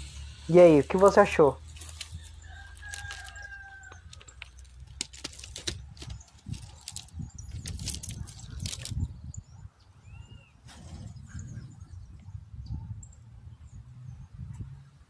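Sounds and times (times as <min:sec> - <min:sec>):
footsteps on gravel: 0:01.6 - 0:09.0
rooster crowing: 0:02.0 - 0:04.4.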